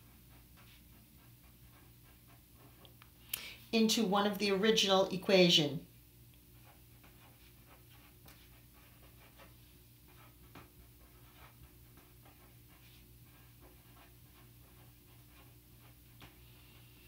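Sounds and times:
pen scratching on paper: 0.0s - 3.1s, 6.5s - 17.0s.

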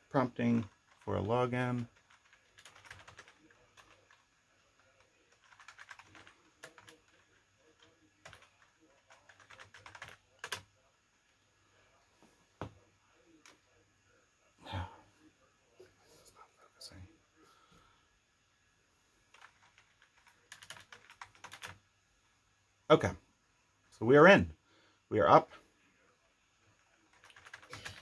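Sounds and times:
typing on keyboard: 1.7s - 4.2s, 4.8s - 10.7s, 19.3s - 21.8s, 26.8s - 28.0s.

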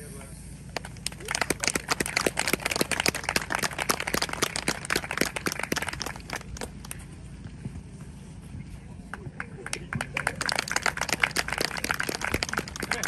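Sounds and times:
people clapping: 0.8s - 7.0s, 9.0s - 13.0s.

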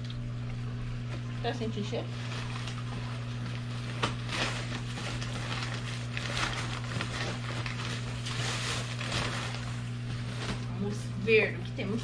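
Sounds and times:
steady low hum: 0.0s - 12.0s
paper bag rustling and crinkling: 1.9s - 11.0s.

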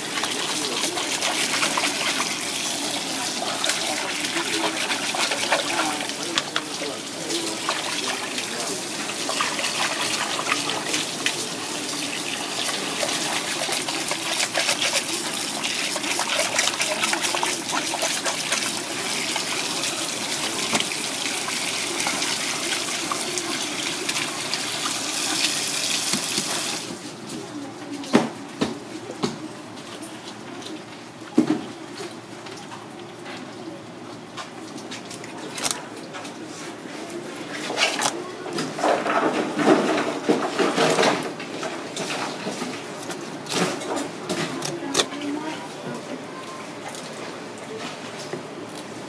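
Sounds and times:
tap water running into sink: 0.0s - 27.0s.

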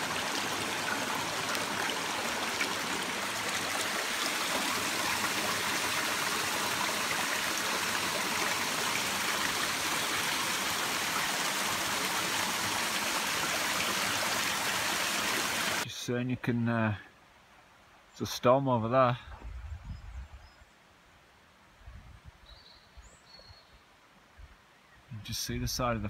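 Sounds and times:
rocky stream rushing: 0.0s - 15.8s.

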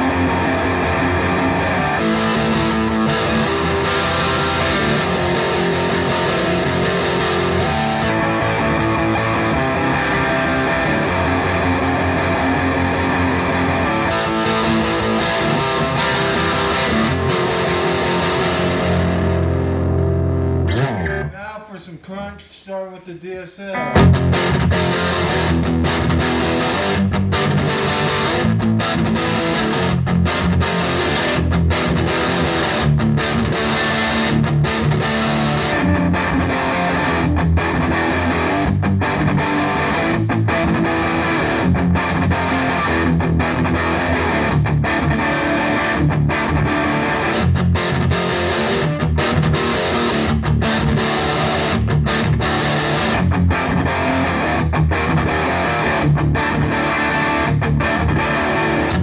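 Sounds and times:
overdriven electric guitar riffing: 0.0s - 21.4s, 23.6s - 59.0s.

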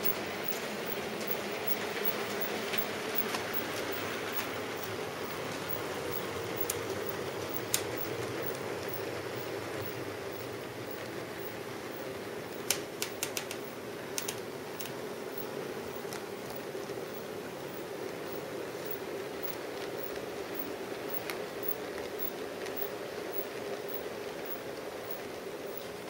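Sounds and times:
wheels clicking on track: 0.0s - 26.0s.

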